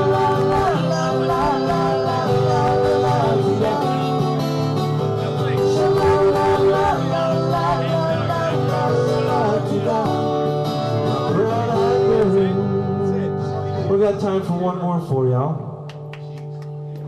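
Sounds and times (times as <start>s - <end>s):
acoustic guitar playing: 0.0s - 17.0s.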